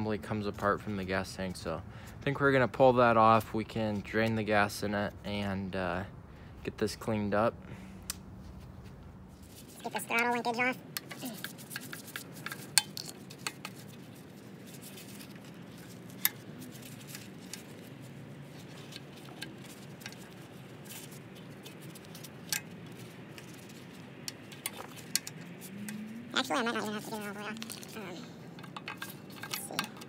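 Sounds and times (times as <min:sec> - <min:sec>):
small metallic clicks: 0:27.1 - 0:30.0.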